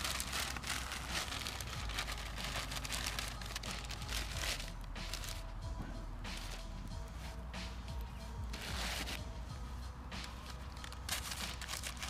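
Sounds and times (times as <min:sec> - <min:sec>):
paper crackling in fire: 0:00.0 - 0:05.5, 0:08.5 - 0:09.2, 0:10.2 - 0:12.0.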